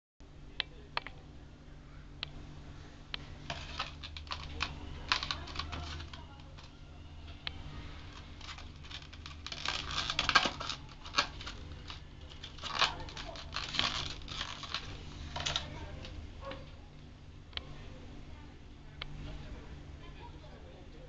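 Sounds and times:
plastic blister pack crinkling: 3.2 - 6.8, 7.6 - 16.2.

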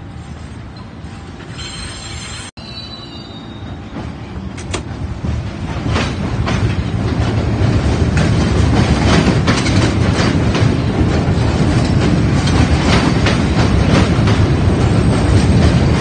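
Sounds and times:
subway train rumbling: 0.0 - 16.0
wheels clicking over rail joints: 4.0 - 16.0.

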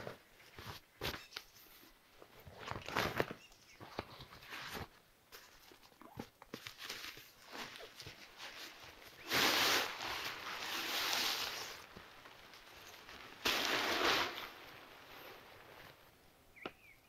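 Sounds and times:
fabric rustling: 4.2 - 16.1
nylon rustling: 6.5 - 16.1.

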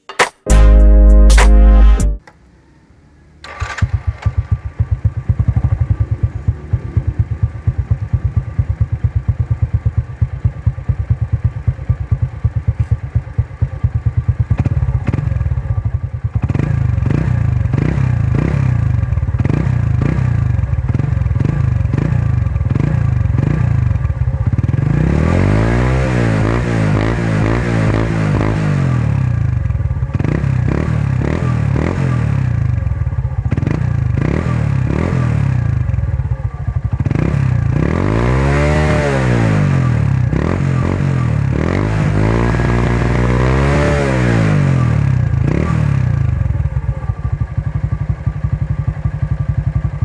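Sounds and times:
motorcycle engine idling and revving: 2.2 - 50.0.

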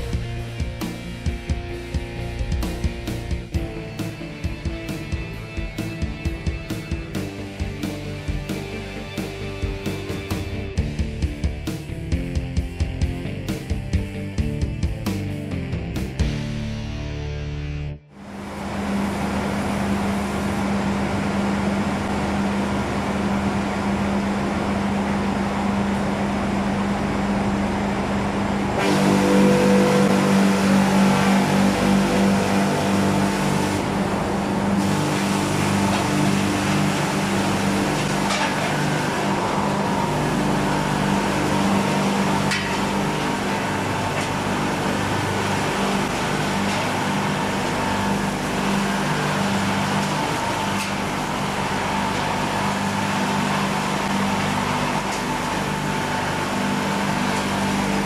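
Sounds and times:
saw mill motor and saws humming: 0.0 - 12.6, 18.2 - 58.0.

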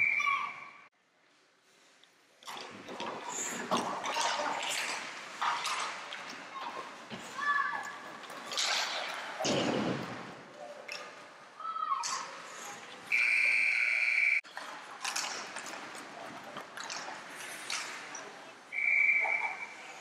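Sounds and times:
knocks on ice rink: 9.4 - 10.3
referee's whistle blast: 13.1 - 14.4, 18.7 - 19.8.

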